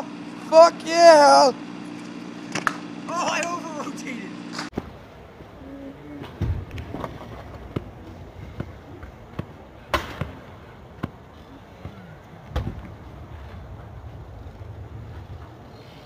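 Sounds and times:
steady low rumble: 0:04.8 - 0:16.0.

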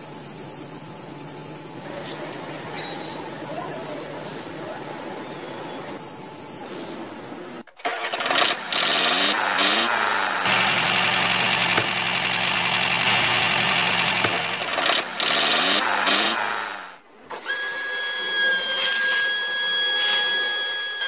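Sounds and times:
miniature tractor motor running: 0:07.8 - 0:17.0.

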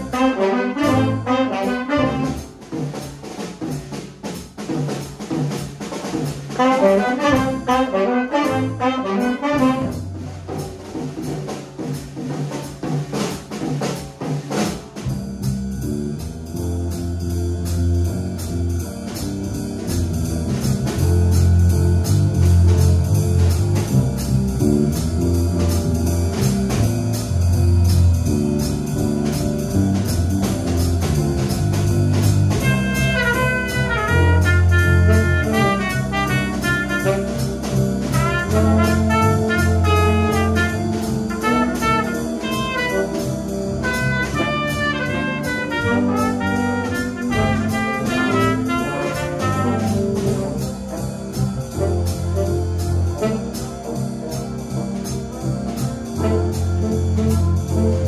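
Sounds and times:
low bass line: 0:00.0 - 0:02.5, 0:15.1 - 0:58.0
brass and saxophone: 0:00.0 - 0:02.6, 0:06.5 - 0:10.6, 0:32.2 - 0:58.0
drum kit keeping time: 0:00.0 - 0:58.0
quick stepping melody line: 0:16.5 - 0:58.0.

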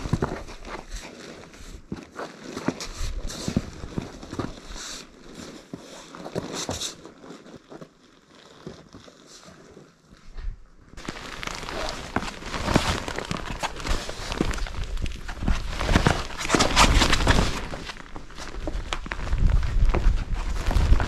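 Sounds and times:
footsteps on sand: 0:11.0 - 0:21.0.

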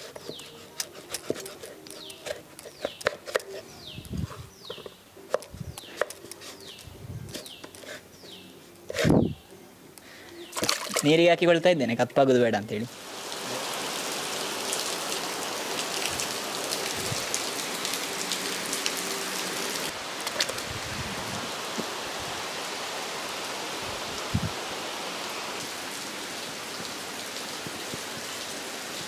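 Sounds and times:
water drips: 0:10.4 - 0:11.2
heavy rain streaming off roof: 0:12.9 - 0:29.0.

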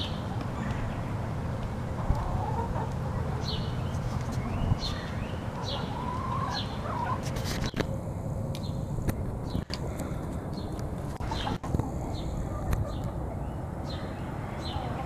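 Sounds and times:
hens clucking softly: 0:02.0 - 0:04.4, 0:05.5 - 0:07.7, 0:11.2 - 0:13.5
steady low rumble: 0:07.7 - 0:15.0.

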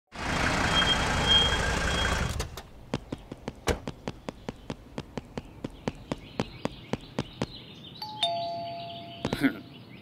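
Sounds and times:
car engine with high squeal: 0:00.2 - 0:02.6
quick footsteps: 0:02.6 - 0:07.6.

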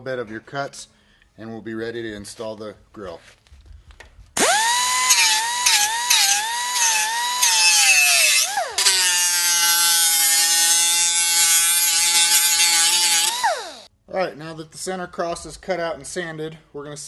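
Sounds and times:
die grinder whining: 0:04.4 - 0:13.9.

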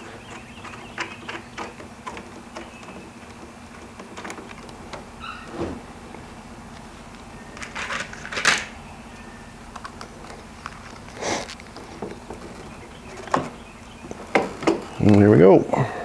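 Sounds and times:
faint steady hum: 0:00.0 - 0:16.0
metal bolts clicking and rattling: 0:00.1 - 0:05.1, 0:07.5 - 0:08.8.

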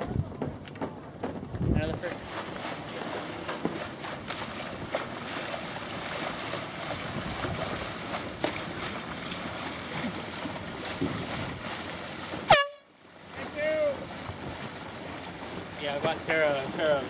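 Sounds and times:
water lapping against hulls: 0:00.0 - 0:17.0
wind rushing over microphone: 0:01.4 - 0:02.2, 0:06.9 - 0:08.0.

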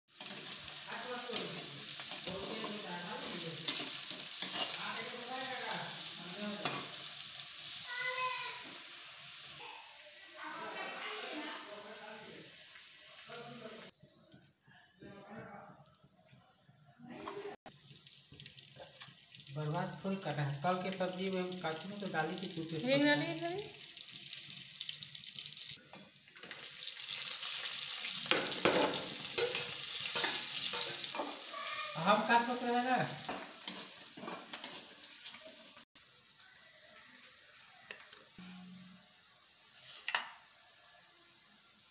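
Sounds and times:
mushrooms sizzling in hot oil: 0:00.1 - 0:14.0, 0:17.7 - 0:41.9
metal spatula scraping pan: 0:01.3 - 0:05.0, 0:28.2 - 0:31.5, 0:33.2 - 0:35.4.

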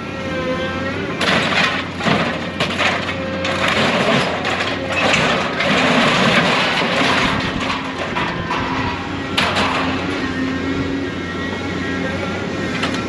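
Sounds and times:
machine engine and hydraulics: 0:00.0 - 0:13.0
scrap metal clattering and scraping: 0:01.1 - 0:10.4.

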